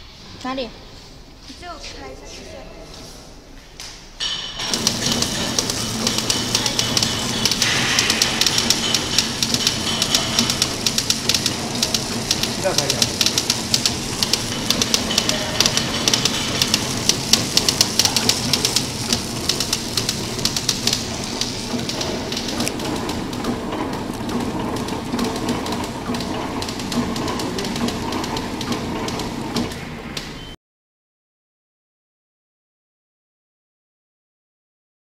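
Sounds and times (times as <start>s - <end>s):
steady mechanical hum: 0.0s - 30.6s
packaging machine clicking: 4.6s - 30.4s.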